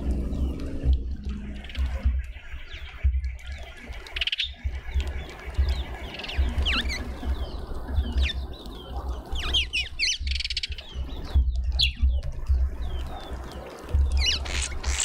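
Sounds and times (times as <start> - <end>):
low rumble: 0.0 - 3.3
small birds chirping: 0.0 - 15.0
buzzy bird chatter: 1.3 - 15.0.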